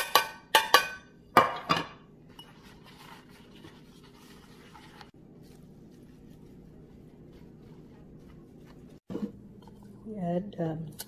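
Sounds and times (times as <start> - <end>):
paper towel rustling: 2.5 - 9.1.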